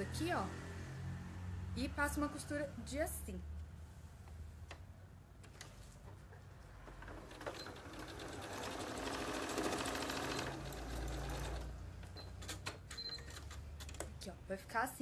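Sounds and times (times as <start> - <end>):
sewing machine stitching: 6.8 - 13.6.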